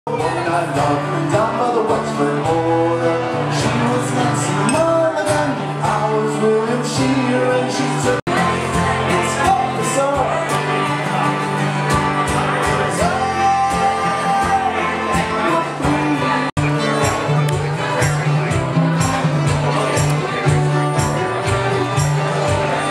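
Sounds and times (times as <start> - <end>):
acoustic guitar strumming: 0.1 - 22.9
man singing: 0.1 - 22.9
fiddle playing: 10.7 - 22.9.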